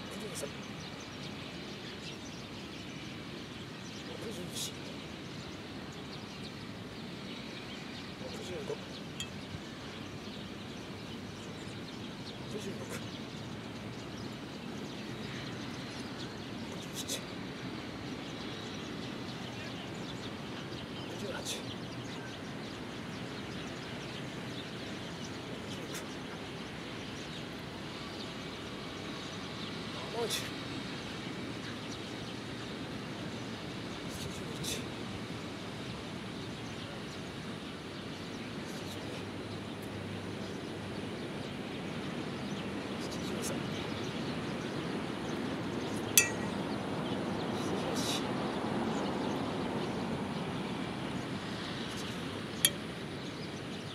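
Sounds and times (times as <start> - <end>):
faint bird chirps: 7.3 - 30.6, 41.9 - 44.9, 45.8 - 48.4.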